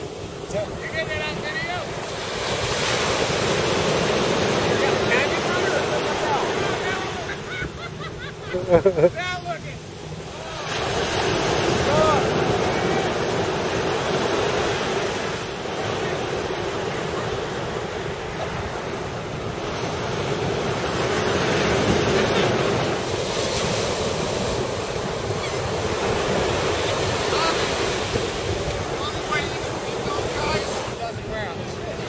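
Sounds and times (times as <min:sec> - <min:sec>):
surf washing on beach: 0:00.0 - 0:32.0
wind buffeting microphone: 0:18.1 - 0:32.0.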